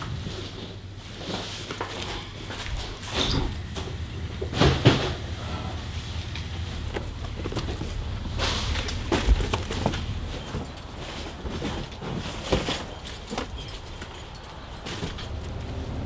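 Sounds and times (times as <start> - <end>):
cardboard boxes rustling: 0.2 - 16.0
boxes knocking: 6.6 - 13.7.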